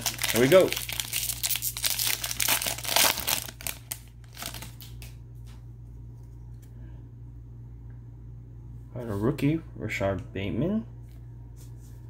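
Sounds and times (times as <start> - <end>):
plastic wrapper crinkling: 0.0 - 5.2.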